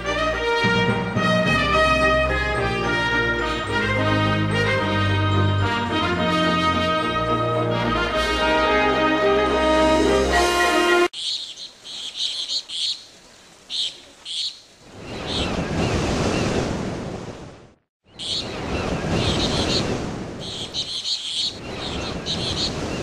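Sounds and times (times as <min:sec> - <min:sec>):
birds chirping: 0:11.2 - 0:16.6, 0:18.0 - 0:23.0.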